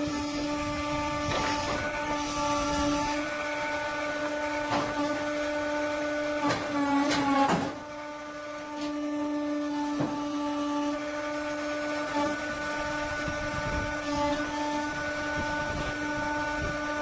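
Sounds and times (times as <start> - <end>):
sawmill motor hum: 0.0 - 17.0
knocks and clanks: 1.2 - 3.1, 4.6 - 5.2, 6.4 - 7.8, 9.8 - 10.3.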